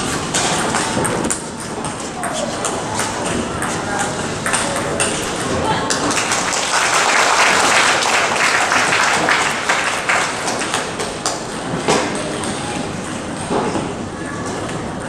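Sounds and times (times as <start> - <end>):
crowd applauding and cheering: 5.9 - 11.5.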